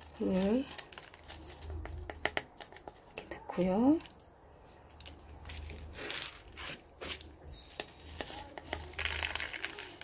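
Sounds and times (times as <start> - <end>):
potting mix pouring into a pot: 7.0 - 10.0.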